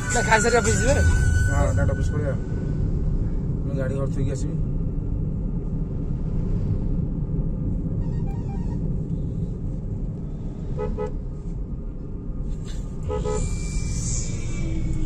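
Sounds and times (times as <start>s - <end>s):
road and engine rumble in car: 0.0s - 15.0s
faint horn-like tone: 8.0s - 8.8s
vehicle horn beeps: 8.0s - 8.8s, 10.8s - 11.1s, 13.0s - 13.6s.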